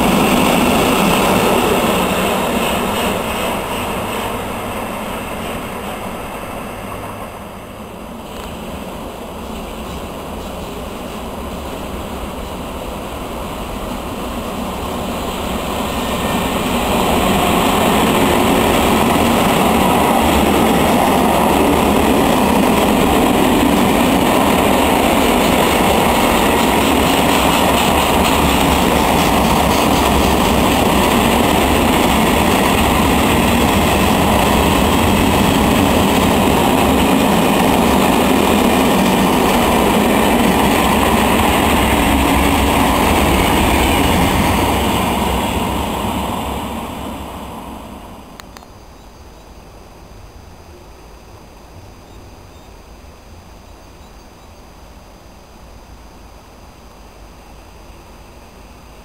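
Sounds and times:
freight train passing: 0.0 - 59.0
wagon wheels rolling on rails: 15.9 - 44.8.

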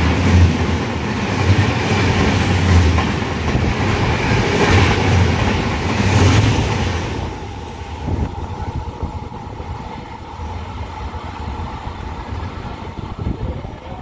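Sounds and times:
train rumbling on rails: 0.0 - 14.0.

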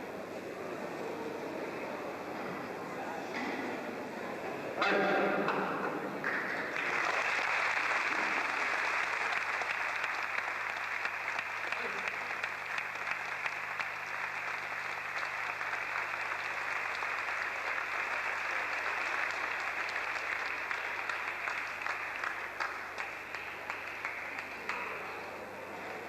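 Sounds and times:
audience applauding: 6.2 - 26.0.

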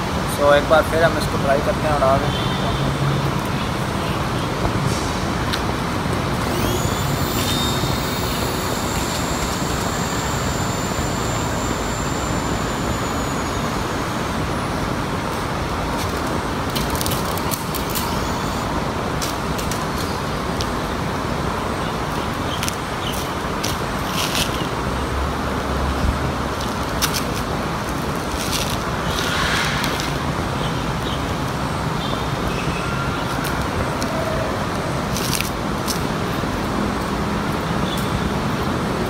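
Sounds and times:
rushing background noise: 0.0 - 39.0
toy helicopter rotor motor whining: 6.2 - 15.3, 16.7 - 18.7.

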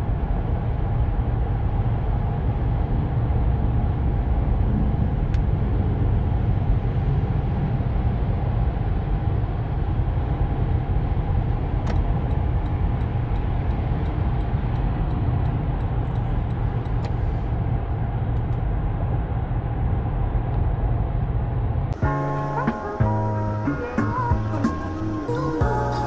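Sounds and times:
engine and road rumble: 0.0 - 26.0
music: 22.0 - 26.0.

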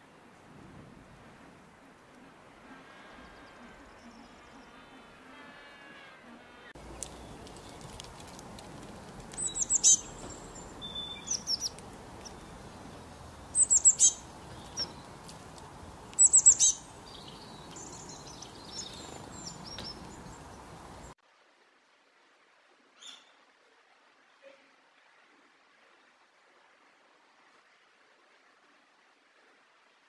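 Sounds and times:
background hiss: 0.0 - 30.0
songbirds chirping: 1.6 - 21.2.

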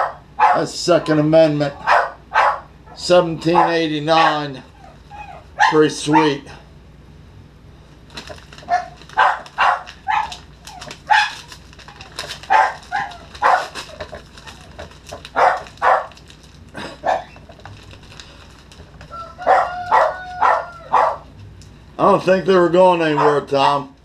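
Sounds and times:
dogs barking: 0.0 - 0.8, 1.7 - 6.5, 8.6 - 17.6, 19.1 - 21.4, 23.0 - 23.9.

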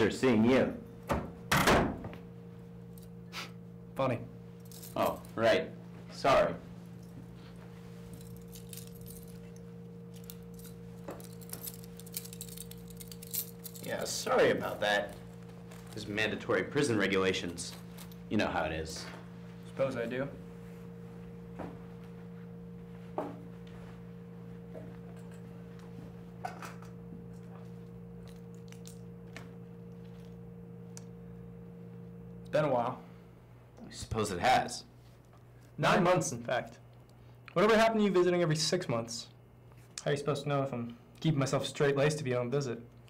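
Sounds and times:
low electrical hum: 0.0 - 43.0
handcuffs jingling and clicking: 8.2 - 9.4, 10.1 - 14.1.

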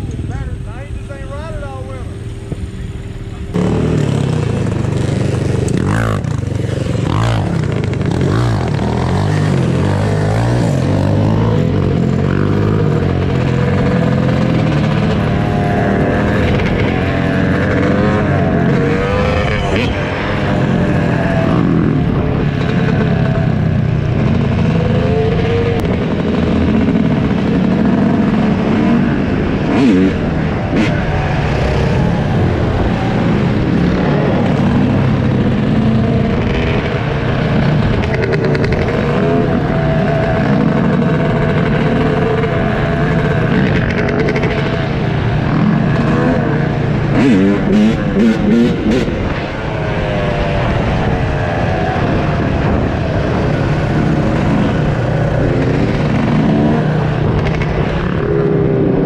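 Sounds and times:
dirt bike engine revving: 0.0 - 59.0
other motorbikes and quads: 0.0 - 59.0.

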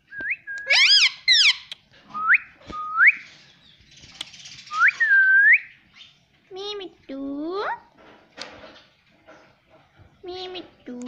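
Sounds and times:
parakeet whistling: 0.4 - 3.2
parakeet harsh calls: 0.7 - 1.7.

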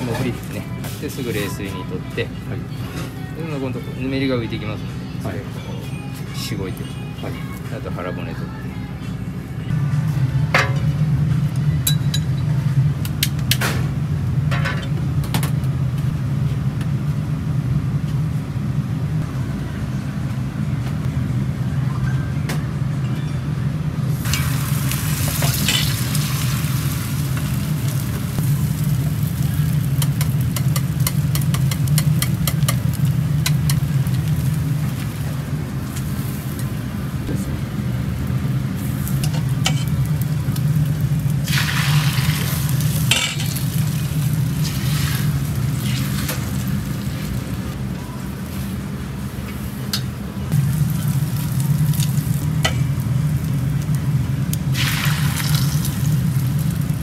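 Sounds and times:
steady low hum: 0.0 - 57.0
egg sizzling in a pan: 24.2 - 35.1, 39.9 - 47.5, 54.5 - 57.0.

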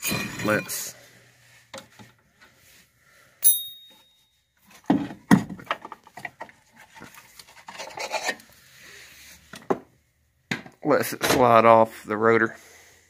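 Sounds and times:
metal knocks clanks and scrapes: 0.0 - 0.9
ringing metal clink: 3.4 - 4.3.

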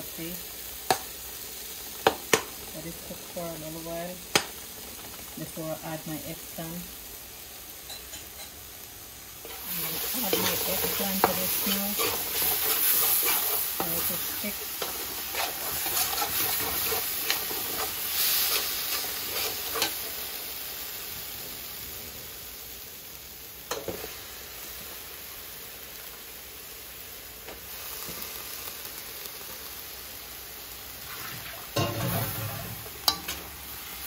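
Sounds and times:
paste sizzling in a pot: 0.0 - 34.0
spoon scraping a pot: 9.4 - 14.2, 14.8 - 20.0.

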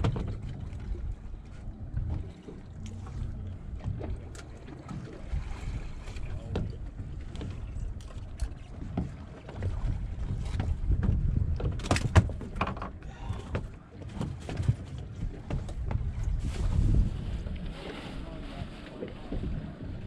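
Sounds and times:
low rumble of wind: 0.0 - 20.0
water around a boat: 0.0 - 20.0
fishing tackle clicks and knocks: 11.0 - 13.0.

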